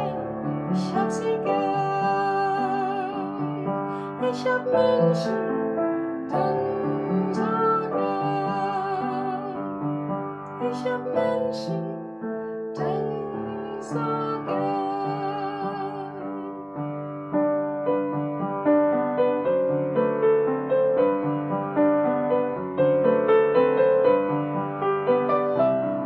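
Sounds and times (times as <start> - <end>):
woman singing: 0.0 - 16.8
piano playing slow chords: 0.0 - 26.0.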